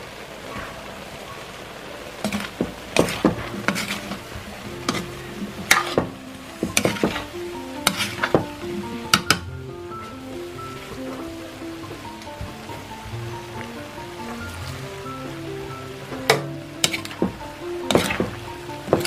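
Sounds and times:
food sizzling in a wok: 0:00.0 - 0:19.0
background music: 0:01.8 - 0:19.0
metal spatula scraping a pan: 0:02.2 - 0:09.4, 0:16.8 - 0:19.0.

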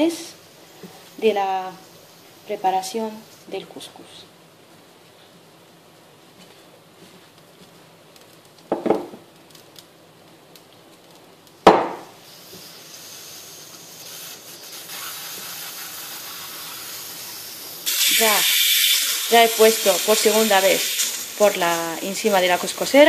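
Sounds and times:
steam hissing from pot: 0:00.0 - 0:04.2, 0:12.0 - 0:23.0.

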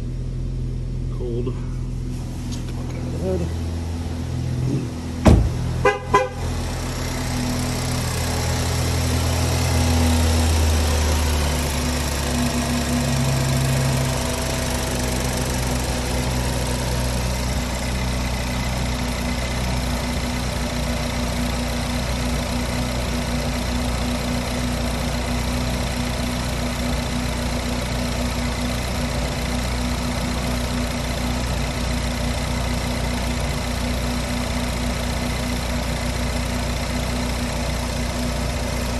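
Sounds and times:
car engine idling: 0:00.0 - 0:38.9
car door shutting: 0:04.7 - 0:05.7.

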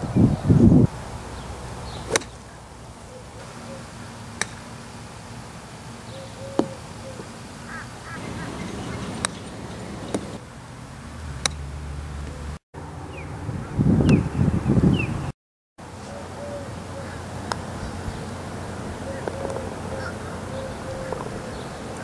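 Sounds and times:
golf club striking ball: 0:02.1 - 0:02.4, 0:08.9 - 0:10.4, 0:11.4 - 0:11.6.

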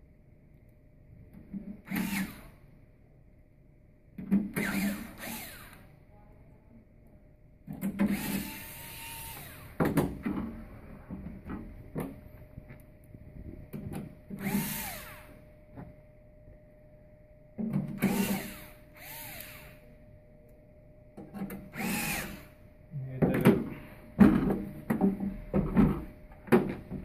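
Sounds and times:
cordless screwdriver motor whine: 0:01.9 - 0:02.6, 0:04.6 - 0:05.8, 0:08.0 - 0:09.8, 0:14.3 - 0:15.4, 0:18.0 - 0:19.9, 0:21.7 - 0:22.6.

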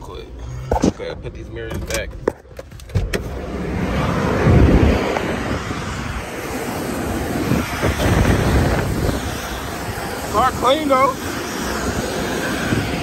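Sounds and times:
wind buffeting microphone: 0:02.9 - 0:13.0.

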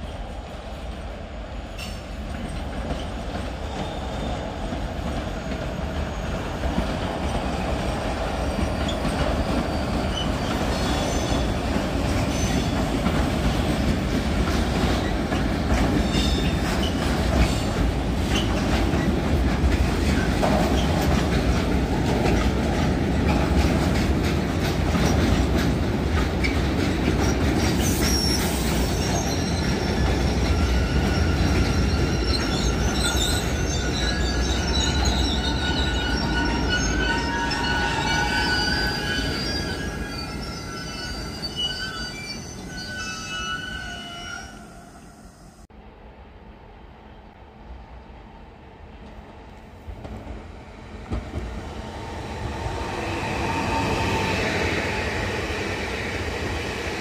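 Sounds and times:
freight train passing: 0:00.0 - 0:57.0
high wheel squeals: 0:08.4 - 0:11.6, 0:27.7 - 0:45.5.

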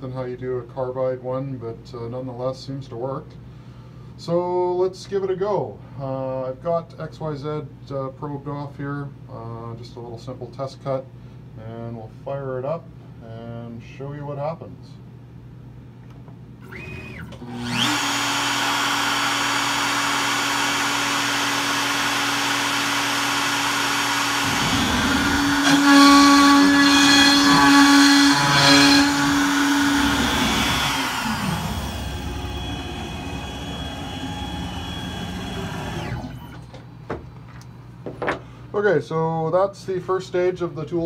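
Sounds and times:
router spindle whine: 0:16.6 - 0:36.6
machine motors whirring: 0:16.6 - 0:36.8
router cutting wood: 0:16.7 - 0:36.6.

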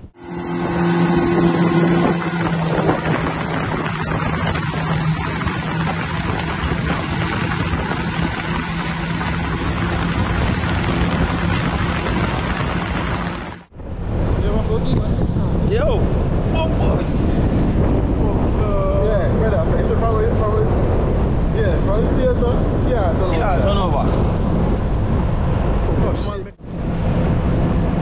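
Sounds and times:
boat engine humming: 0:00.0 - 0:14.3
water noise: 0:00.0 - 0:28.0
wind rushing: 0:00.0 - 0:28.0.

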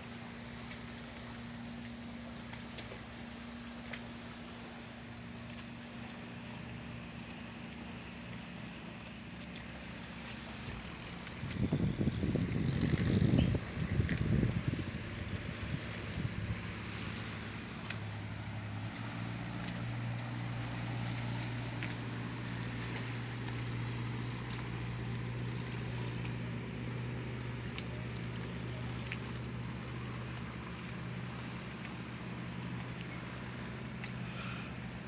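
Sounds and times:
boat engine running: 0:00.0 - 0:35.0
hiss of wind and water: 0:00.0 - 0:35.0.

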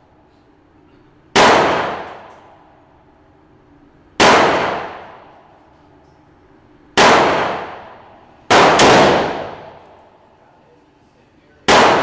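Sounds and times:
rifle shots echoing indoors: 0:01.3 - 0:10.4, 0:11.6 - 0:12.0.

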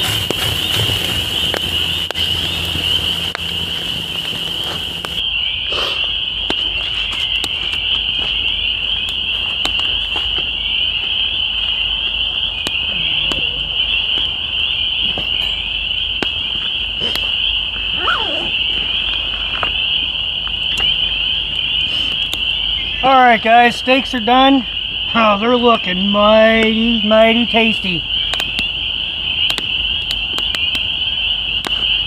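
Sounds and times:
frogs peeping: 0:00.0 - 0:32.0
sharp clicks: 0:28.3 - 0:28.7, 0:29.5 - 0:30.9.

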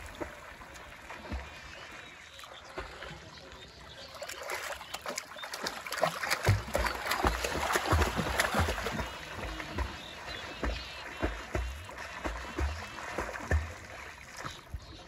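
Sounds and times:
water splashing from swimming: 0:00.0 - 0:15.0.

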